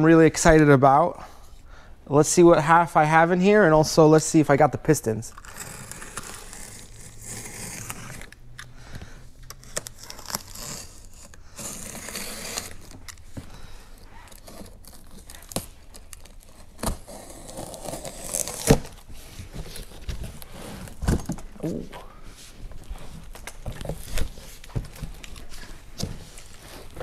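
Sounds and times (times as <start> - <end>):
tape and cardboard tearing: 5.3 - 21.8, 23.0 - 27.0
packing material crinkling: 9.4 - 21.8.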